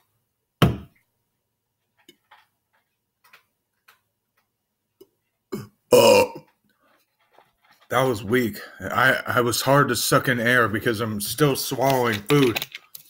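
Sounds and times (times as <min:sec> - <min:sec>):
man belching: 0:05.5 - 0:06.5.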